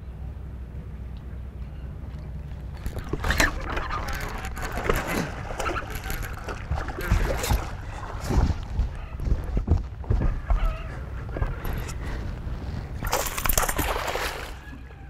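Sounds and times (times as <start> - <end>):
fish splashing at water surface: 13.0 - 14.7.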